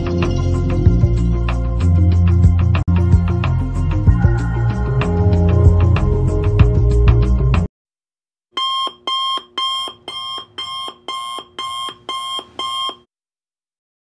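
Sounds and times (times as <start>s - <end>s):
phone alarm chime pulses: 8.6s - 13.1s.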